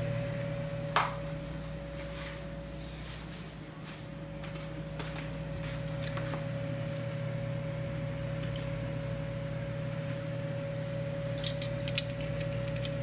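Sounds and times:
low kitchen hum: 0.0s - 13.0s
metal tongs clacking: 11.4s - 13.0s.

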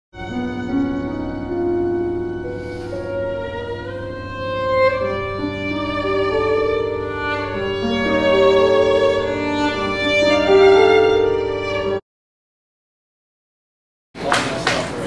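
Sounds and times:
bowed strings music: 0.2s - 12.0s.

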